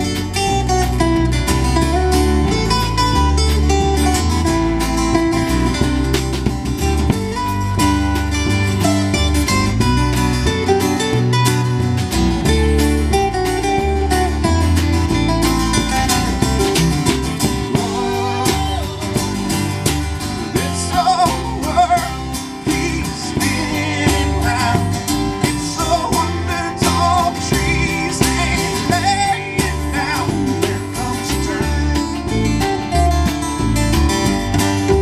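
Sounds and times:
drum kit beat: 0.0s - 35.0s
plucked upright bass: 0.0s - 35.0s
resonator guitar: 0.0s - 35.0s
strummed acoustic guitar: 0.0s - 35.0s
man singing: 17.6s - 33.0s.

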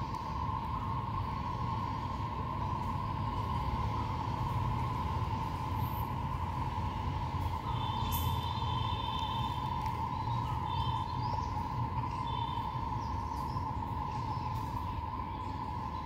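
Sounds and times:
bird chirps: 7.6s - 16.0s.

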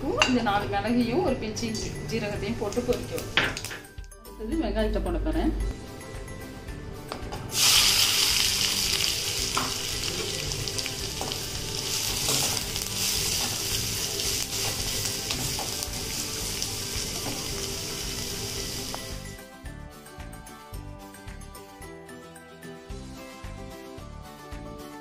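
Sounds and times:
onion sizzling in hot oil: 7.5s - 19.3s.

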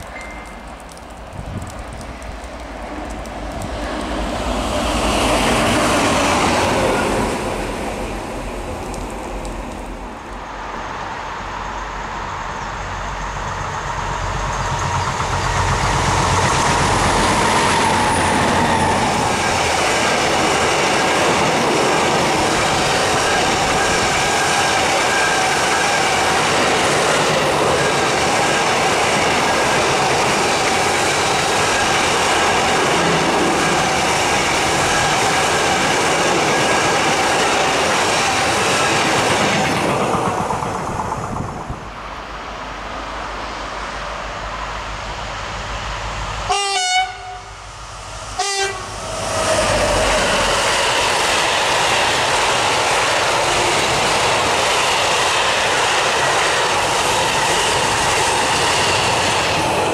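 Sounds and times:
freight train wheels on rails: 0.0s - 59.9s
train rumble approaching: 0.0s - 59.9s
train horn blasts: 46.5s - 47.6s, 48.4s - 49.0s.

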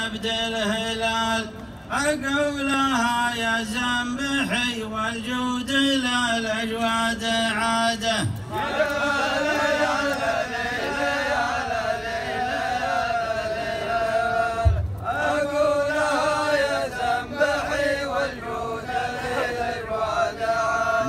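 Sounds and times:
men chanting together: 7.9s - 21.0s
low thump: 14.6s - 15.1s.

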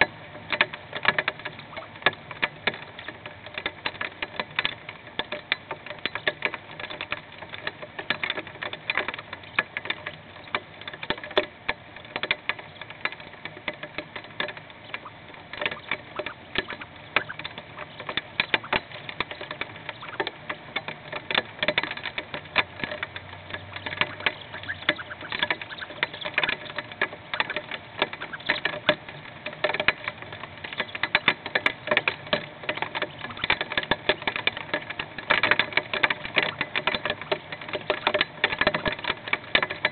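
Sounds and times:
hail drumming on wooden box: 0.0s - 39.9s.

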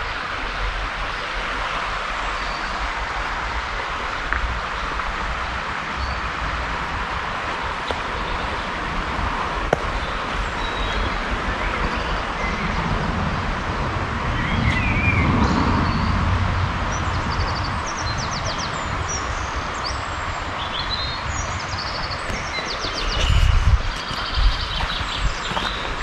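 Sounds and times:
steady rushing noise: 0.0s - 26.0s
birds singing: 7.6s - 13.0s, 14.2s - 26.0s.

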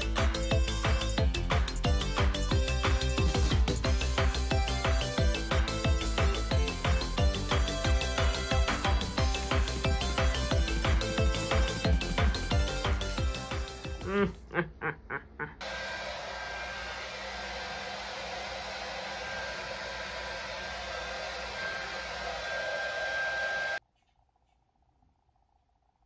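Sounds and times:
background music: 0.0s - 14.4s
rushing noise with high whistle: 18.9s - 23.8s.

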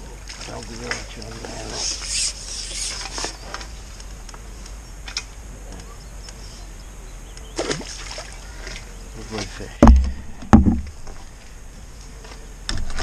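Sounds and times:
water splash: 7.6s - 8.4s.

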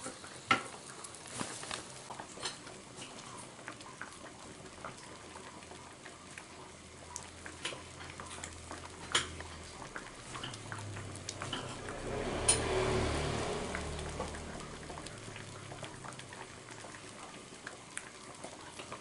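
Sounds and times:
liquid hissing in a wok: 7.4s - 17.7s.

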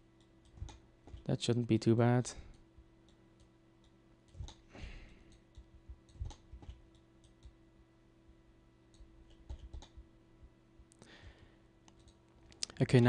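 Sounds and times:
low steady hum: 0.0s - 13.0s
computer mouse and keyboard clicks: 0.2s - 1.3s, 4.3s - 4.6s, 5.3s - 7.6s, 8.9s - 10.0s.

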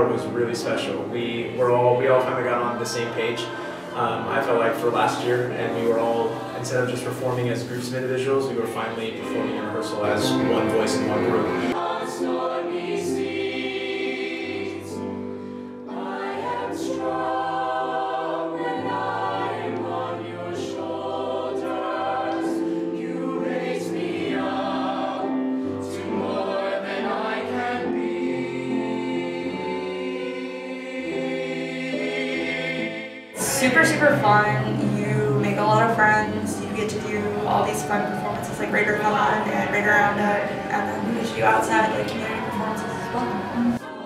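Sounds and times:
choir singing in harmony: 0.0s - 44.0s.

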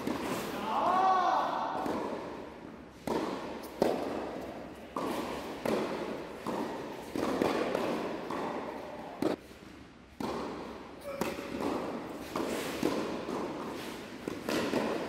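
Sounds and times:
tennis ball pops with echo: 3.0s - 9.4s.

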